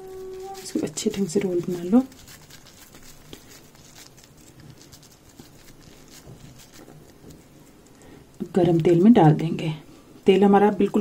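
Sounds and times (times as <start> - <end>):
wet hands patting dough: 0.0 - 9.6.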